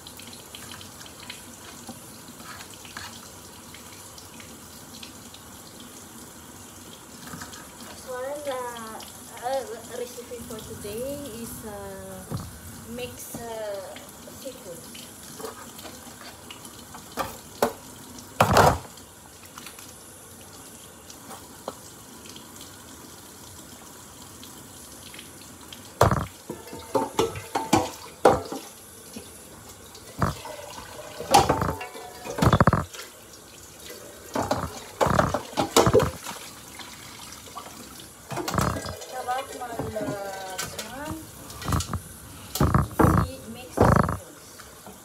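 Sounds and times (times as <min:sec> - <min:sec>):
running water: 0:00.0 - 0:45.0
metal pot and dishes clattering: 0:26.0 - 0:28.7, 0:30.2 - 0:32.9.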